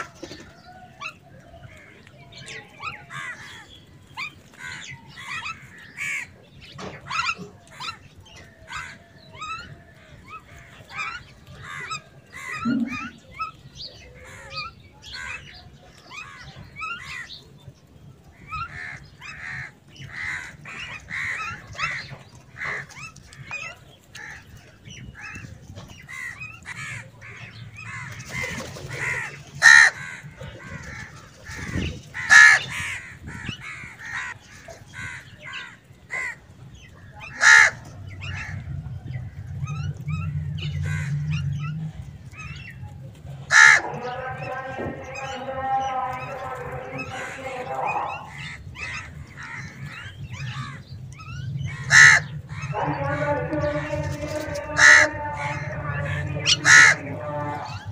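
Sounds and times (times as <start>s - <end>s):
crows cawing: 3.0s - 3.8s, 4.5s - 6.4s, 7.1s - 13.2s, 14.2s - 17.4s, 18.3s - 39.7s, 40.6s - 41.5s, 43.4s - 51.0s, 51.6s - 57.9s
mynas chattering: 12.3s - 13.6s, 37.1s - 49.5s, 51.7s - 57.9s
low rumble: 37.8s - 43.5s.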